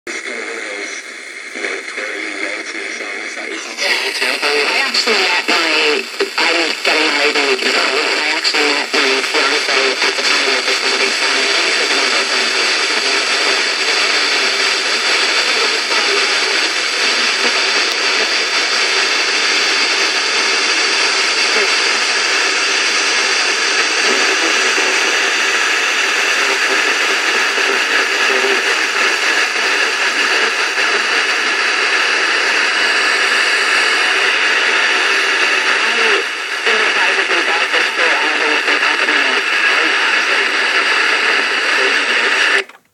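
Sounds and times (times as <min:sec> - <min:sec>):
weak distant radio station: 0:00.1 - 0:42.8
radio static hiss: 0:00.1 - 0:42.9.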